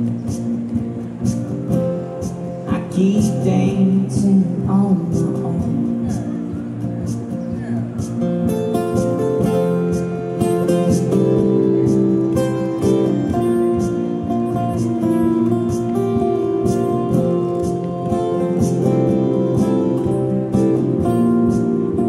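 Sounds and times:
acoustic guitar strumming chords: 0.0 - 22.0.

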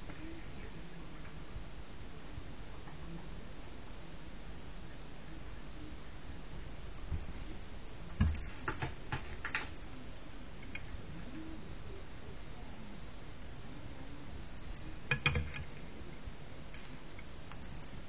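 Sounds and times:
faint high ringing: 5.6 - 11.6, 14.4 - 18.0.

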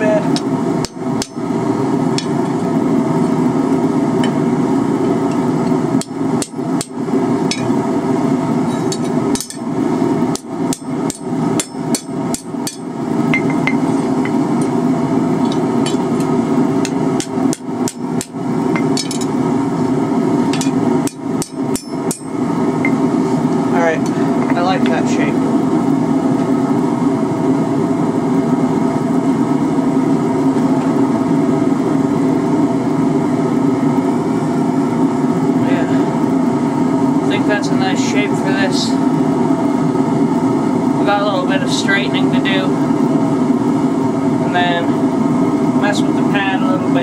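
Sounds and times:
hammer striking metal on anvil: 0.4 - 1.4, 10.3 - 13.8, 16.8 - 19.3, 20.5 - 23.0.

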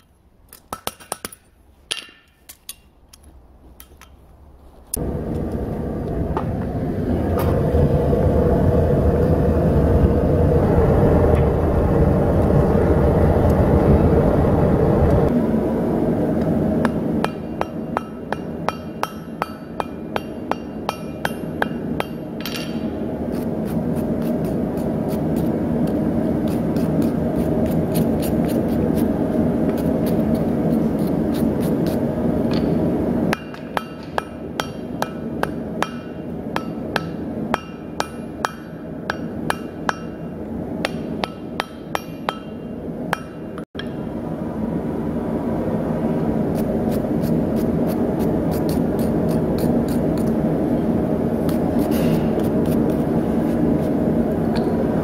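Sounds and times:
steady roar: 5.0 - 17.2
hammer striking metal on anvil: 16.8 - 23.0, 32.5 - 44.1.

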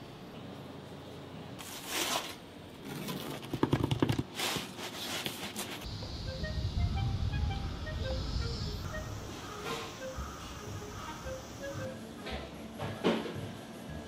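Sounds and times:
music: 6.0 - 14.0.

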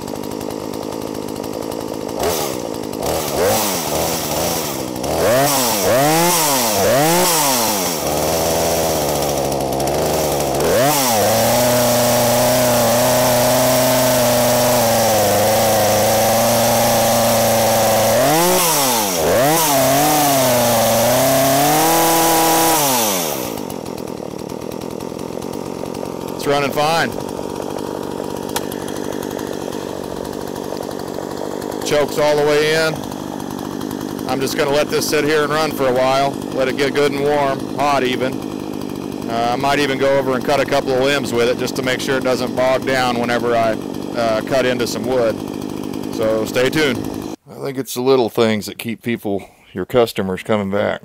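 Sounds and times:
chainsaw idling and revving: 0.0 - 47.4.

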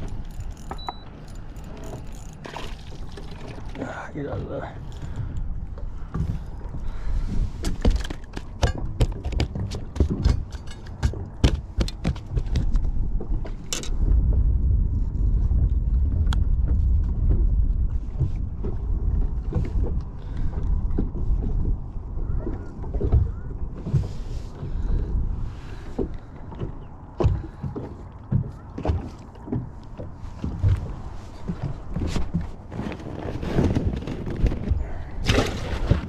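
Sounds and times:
clicks and knocks of fishing tackle: 0.0 - 3.8, 7.6 - 14.0
steady low rumble: 9.8 - 28.6.

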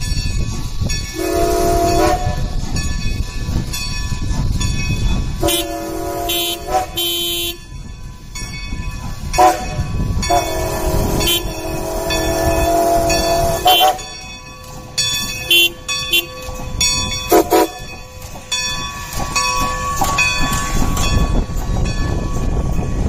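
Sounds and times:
locomotive low rumble: 0.0 - 23.0
steam whistle blasts: 1.2 - 2.5, 5.4 - 7.6, 10.3 - 14.1, 17.3 - 17.8.

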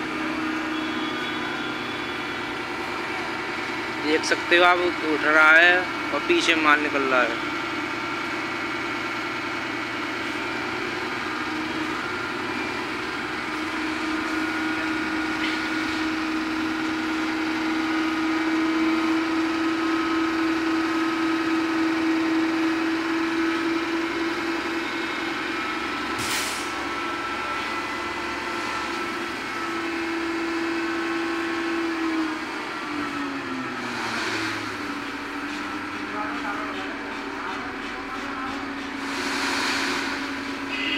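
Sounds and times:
truck engine running under load: 0.0 - 40.9
hydraulic hiss: 26.2 - 26.8.

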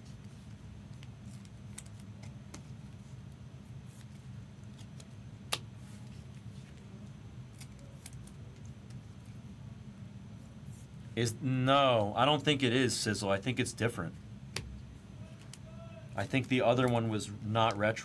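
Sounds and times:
steady low hum: 0.0 - 18.0
trading cards clicking and rustling: 7.5 - 9.3, 14.6 - 17.9.

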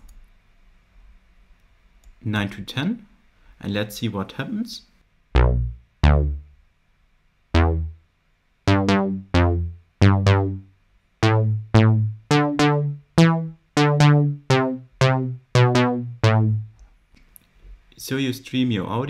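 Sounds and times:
synthesizer bass line: 5.4 - 6.6, 7.6 - 8.0, 8.7 - 16.8.

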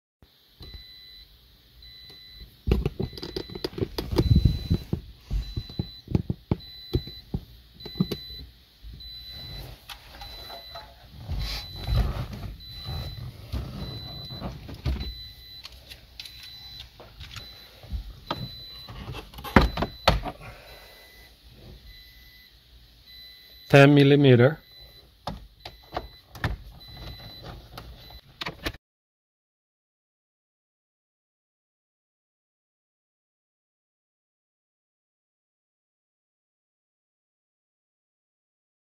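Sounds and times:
car warning chime beeping: 0.6 - 2.5, 3.1 - 28.2.

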